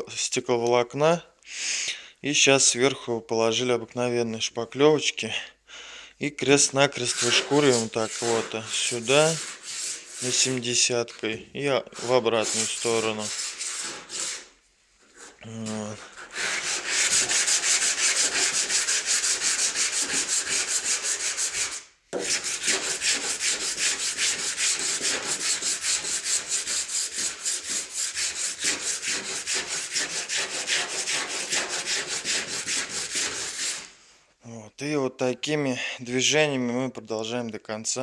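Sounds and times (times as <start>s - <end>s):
hand sanding with sandpaper: 6.9s - 10.7s, 11.9s - 33.9s.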